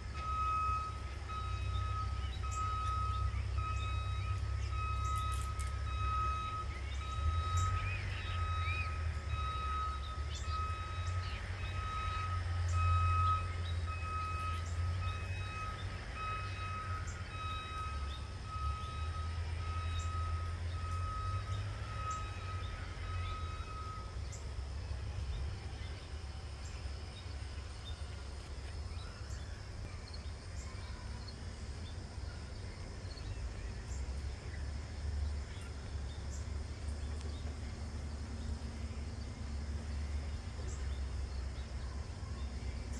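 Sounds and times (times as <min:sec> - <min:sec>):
high beeps: 0:00.1 - 0:24.1.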